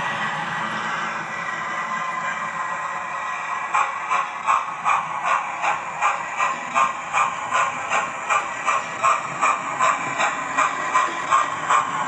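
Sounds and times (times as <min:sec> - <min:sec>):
constant steam hiss: 0:00.0 - 0:12.0
model steam locomotive chuffing: 0:00.0 - 0:12.0.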